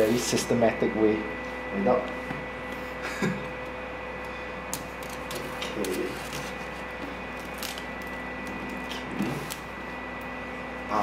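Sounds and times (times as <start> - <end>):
steady background hum: 0.0 - 11.0
plastic film crinkling: 5.0 - 9.6.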